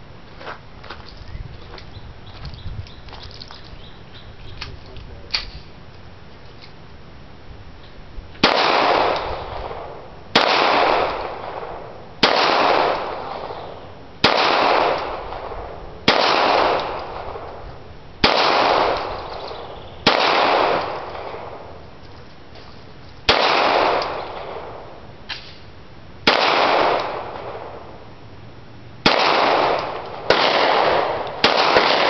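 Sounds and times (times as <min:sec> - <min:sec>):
pistol shots with echo: 0:08.4 - 0:17.6, 0:18.2 - 0:21.8, 0:23.3 - 0:25.6, 0:26.2 - 0:28.0, 0:29.0 - 0:32.0.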